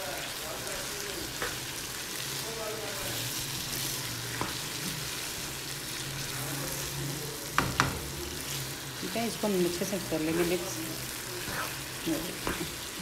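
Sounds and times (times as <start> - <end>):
food sizzling in a frying pan: 0.0 - 13.0
spatula knocking against pan: 7.6 - 8.0
wooden spatula stirring: 7.6 - 13.0.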